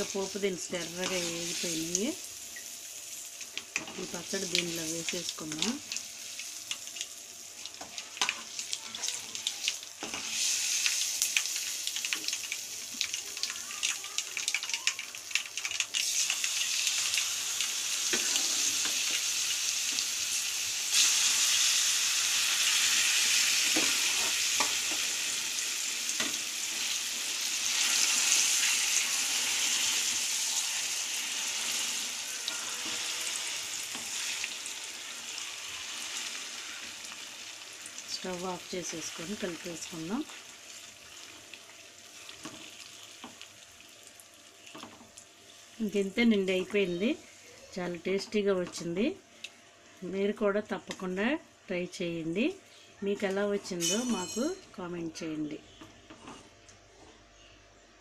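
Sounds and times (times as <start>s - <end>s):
spices sizzling in hot oil: 0.0s - 51.3s, 52.2s - 55.0s.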